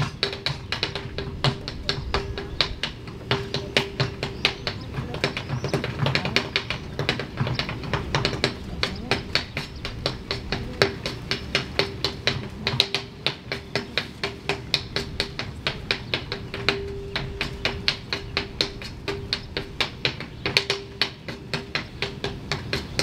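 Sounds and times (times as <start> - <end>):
backing music: 0.0 - 23.0
tap dancing on stage: 0.0 - 23.0.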